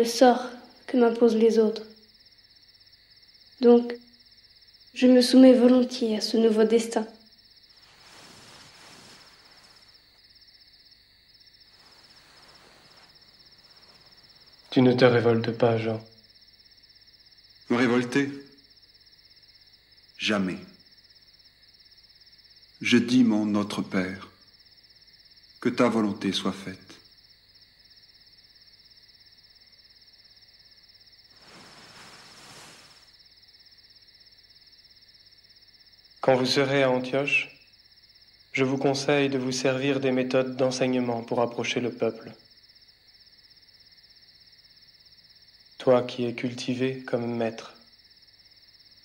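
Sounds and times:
low hiss: 0.0s - 42.4s
crickets chirping: 0.0s - 49.0s
soft rushing noise: 7.7s - 10.2s, 11.6s - 14.7s, 31.3s - 33.2s.

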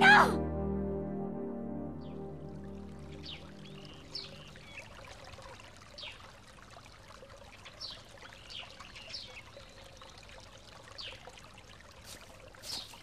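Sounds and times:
trickling water: 1.8s - 13.0s
small birds chirping: 3.1s - 5.2s, 7.7s - 11.3s, 12.1s - 13.0s.

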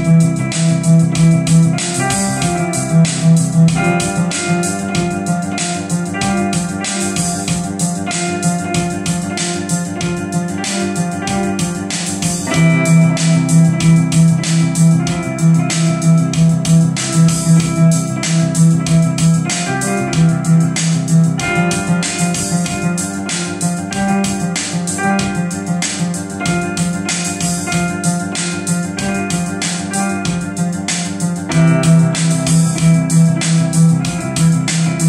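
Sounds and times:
pulsing low bass line: 0.0s - 8.1s, 11.5s - 24.5s, 31.3s - 35.0s
synth-pop on electronic keyboard: 0.0s - 35.0s.

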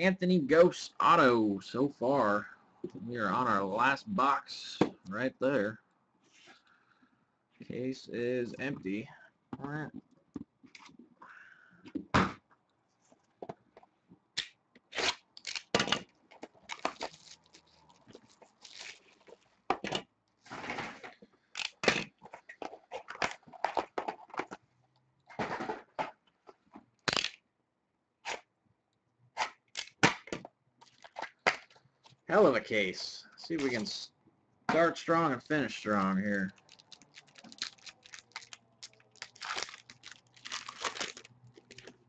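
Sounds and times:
knife slitting shrink-wrap: 14.9s - 15.7s
plastic and cardboard crinkling: 15.4s - 19.8s, 20.5s - 24.7s, 30.8s - 32.2s, 35.0s - 42.0s.

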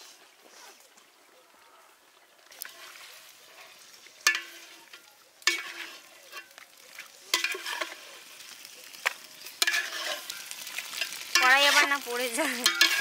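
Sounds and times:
food sizzling: 2.4s - 13.0s
spoon scraping in pot: 3.6s - 6.5s, 7.3s - 8.1s, 9.5s - 12.0s, 12.6s - 13.0s.

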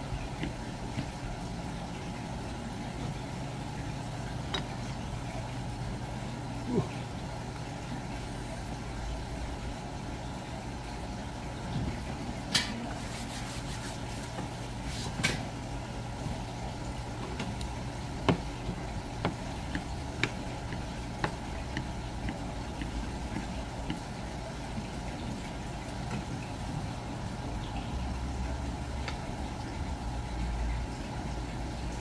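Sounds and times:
steady low hum: 0.0s - 32.0s
knife tapping on cutting board: 18.2s - 24.0s.

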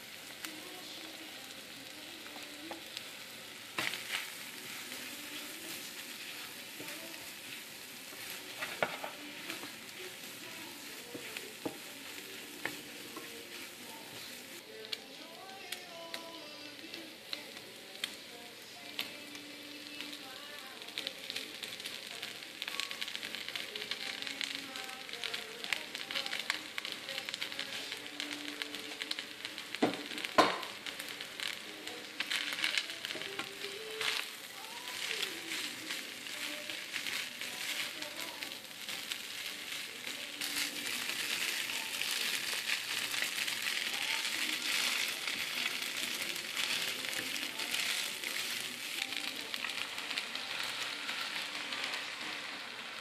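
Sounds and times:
food sizzling in frying pan: 0.0s - 53.0s
wooden spatula scraping pan: 5.3s - 9.8s.

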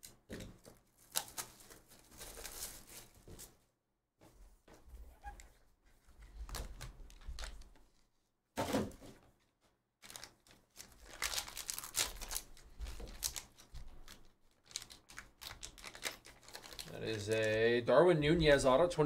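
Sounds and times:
foil wrapper tearing and crinkling: 1.0s - 3.2s, 10.0s - 17.6s.

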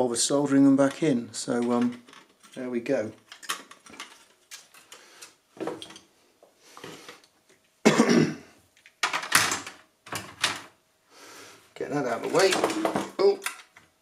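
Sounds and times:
person coughing: 7.8s - 8.5s.

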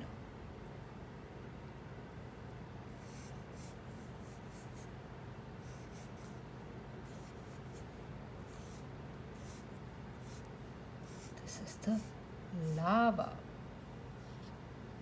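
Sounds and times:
steady low hum: 0.0s - 15.0s
pen scratching on paper: 3.0s - 4.9s, 5.6s - 6.4s, 7.0s - 12.8s.

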